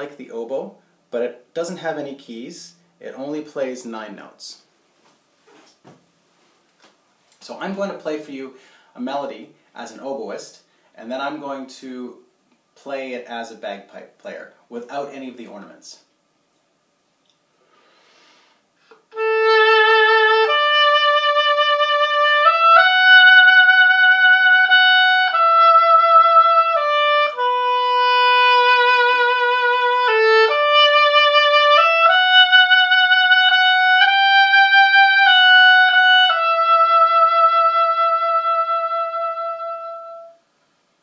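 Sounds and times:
solo oboe melody: 0:19.0 - 0:40.5.

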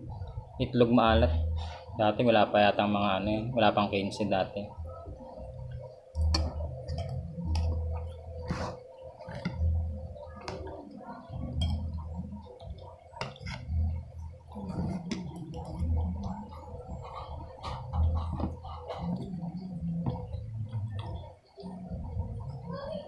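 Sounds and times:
faint steady hum: 0:00.0 - 0:23.0
low thuds: 0:04.8 - 0:22.7
chewing and mouth noises: 0:05.6 - 0:22.6.

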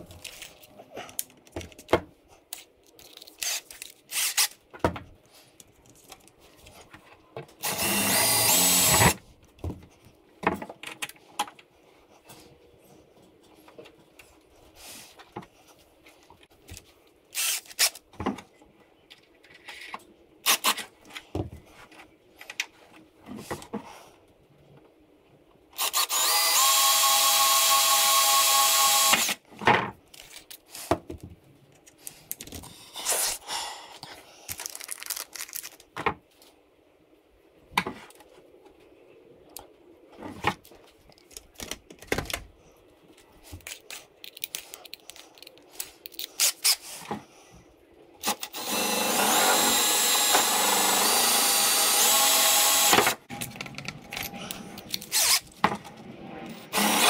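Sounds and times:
cordless drill running: 0:07.6 - 0:09.2, 0:25.8 - 0:29.3, 0:48.2 - 0:53.2, 0:55.1 - 0:55.4, 0:56.7 - 0:57.0.

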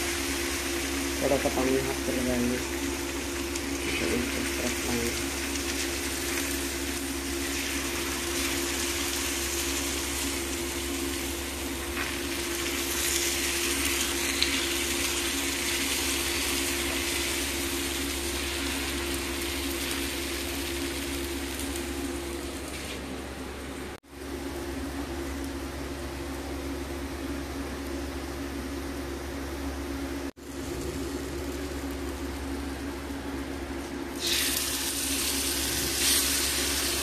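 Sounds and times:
batter sizzling in hot oil: 0:00.0 - 0:22.8, 0:34.1 - 0:37.0
low electrical hum: 0:00.0 - 0:37.0.

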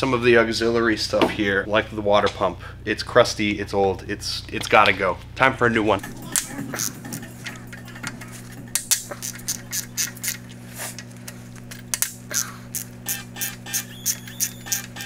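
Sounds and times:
steady low hum: 0:00.0 - 0:15.0
hand tools clicking on metal: 0:06.0 - 0:15.0.

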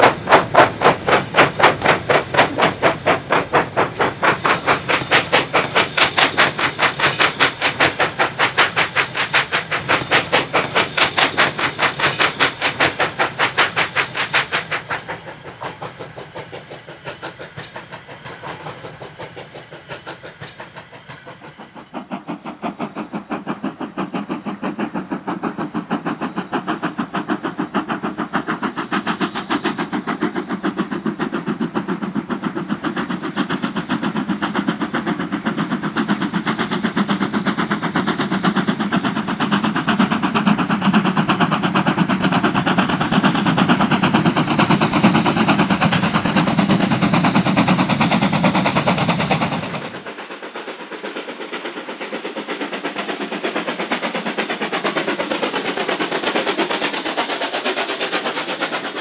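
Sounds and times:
steam locomotive exhaust beats: 0:00.0 - 0:59.0.

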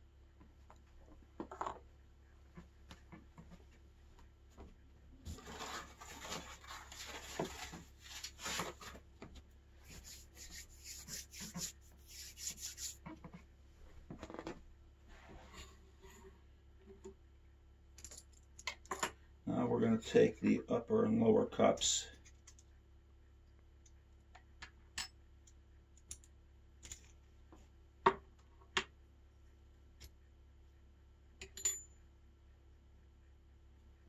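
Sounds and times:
objects rubbing and rustling: 0:04.5 - 0:16.4.

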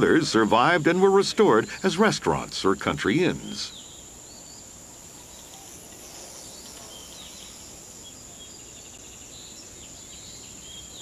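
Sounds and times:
insects whining: 0:00.0 - 0:11.0
faint bird chirps: 0:03.0 - 0:11.0.

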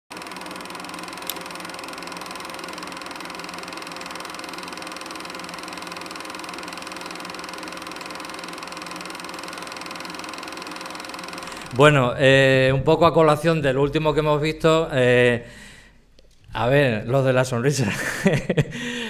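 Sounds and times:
film projector clattering: 0:00.1 - 0:12.0.

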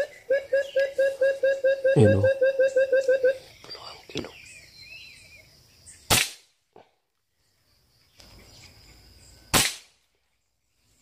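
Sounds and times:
air rifle shots: 0:06.1 - 0:06.5, 0:09.5 - 0:09.9.

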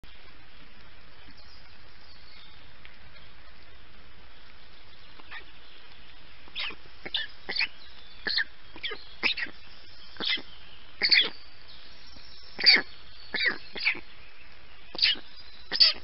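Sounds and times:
microphone hiss: 0:00.0 - 0:16.0
short sharp high bird calls: 0:14.9 - 0:16.0.

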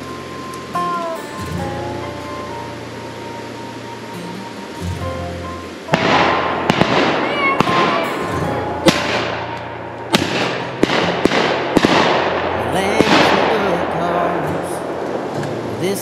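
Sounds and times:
shotguns firing with echo: 0:05.9 - 0:15.3.

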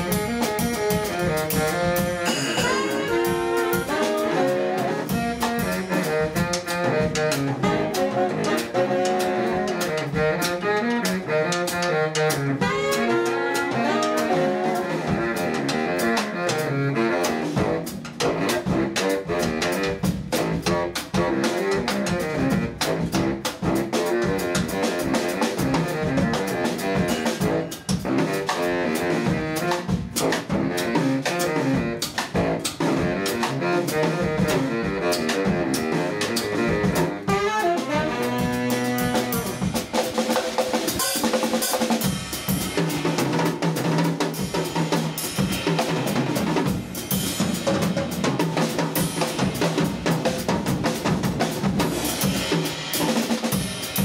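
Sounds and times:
drum kit with cymbals: 0:00.0 - 0:54.0
saxophones playing jazz: 0:00.0 - 0:54.0.

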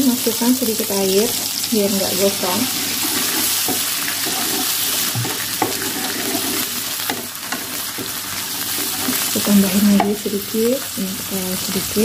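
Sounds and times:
oil sizzling in wok: 0:00.0 - 0:12.0
wooden spatula scraping pan: 0:02.2 - 0:10.1.

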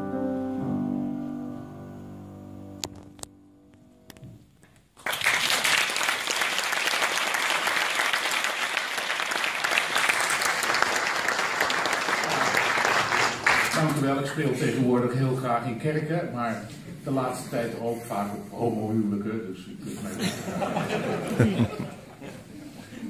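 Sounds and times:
piano chord: 0:00.0 - 0:04.1
audience applause: 0:05.0 - 0:14.0.

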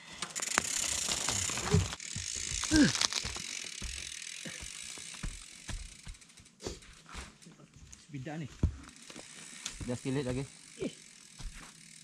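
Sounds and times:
bike clicks and rattles: 0:00.0 - 0:12.0
bicycle freewheel buzzing: 0:00.1 - 0:07.4, 0:08.5 - 0:12.0
tyres hissing on dirt: 0:08.2 - 0:11.9.

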